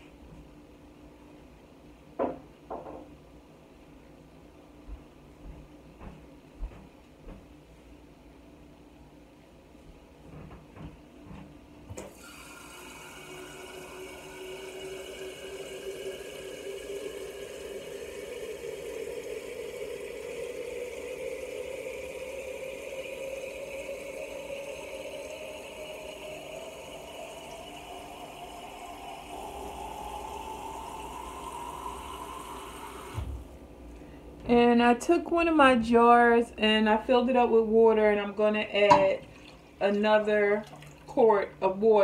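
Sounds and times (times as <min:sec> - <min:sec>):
tap water filling glass jar: 0:38.8 - 0:39.7, 0:40.6 - 0:41.2.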